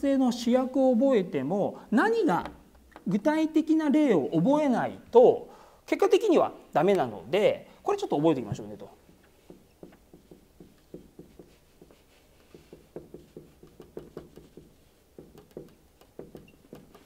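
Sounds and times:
marker writing on whiteboard: 8.5 - 17.0.

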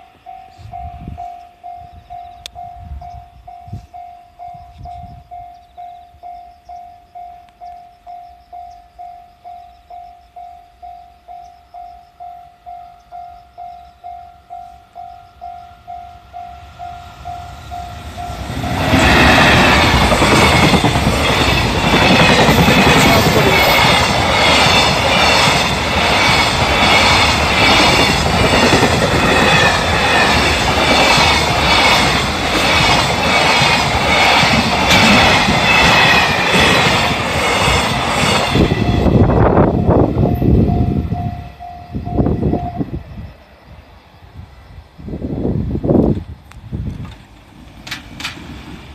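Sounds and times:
freight train passing: 0.0 - 48.9
train wheels clattering: 17.2 - 39.4, 46.9 - 48.9.

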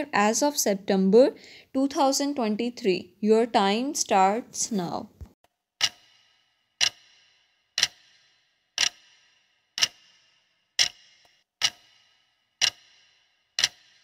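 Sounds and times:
clock ticks with ringing tail: 5.8 - 14.0.

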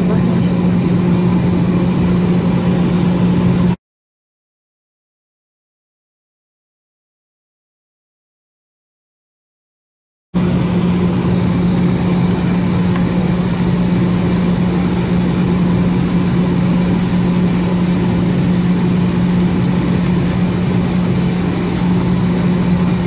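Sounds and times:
aircraft cabin noise: 0.0 - 3.8, 10.4 - 23.0
jet engines idling: 0.0 - 3.8, 10.4 - 23.0.

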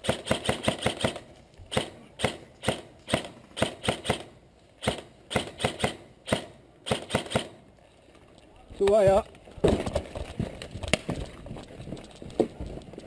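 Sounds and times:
airsoft guns firing: 0.0 - 7.6.

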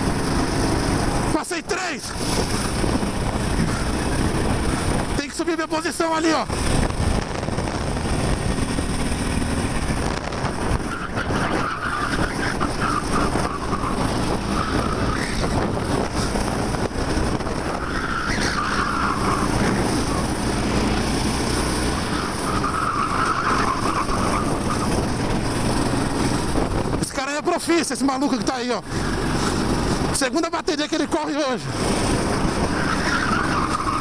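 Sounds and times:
kart engine running: 0.0 - 1.4, 2.1 - 27.0, 28.3 - 30.2, 31.0 - 34.0
tyres squealing: 10.6 - 16.3, 17.6 - 20.6, 21.9 - 25.0, 32.6 - 34.0.

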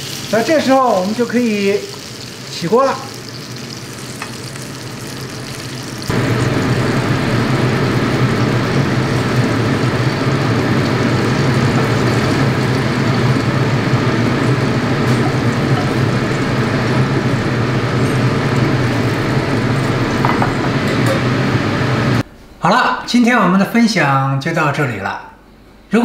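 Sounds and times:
oil sizzling in a frying pan: 0.0 - 22.2
low hum: 3.2 - 22.2.

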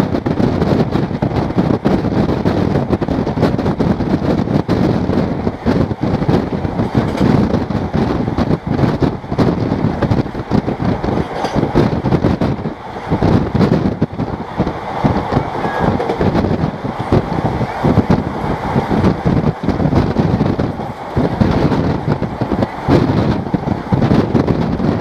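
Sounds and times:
train rumbling: 0.0 - 25.0
wheels rattling on track: 0.0 - 25.0.

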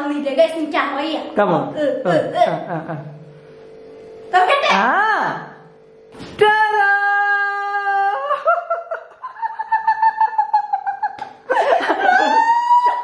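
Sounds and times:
woman giggling: 2.4 - 3.2, 8.0 - 13.0
woman's high-pitched cry: 12.0 - 13.0.

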